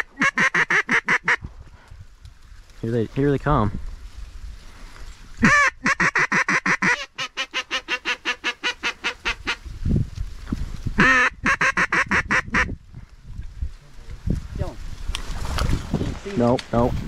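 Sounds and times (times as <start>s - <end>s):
duck call quacks: 0.0s - 1.4s, 5.4s - 9.6s, 11.0s - 12.7s.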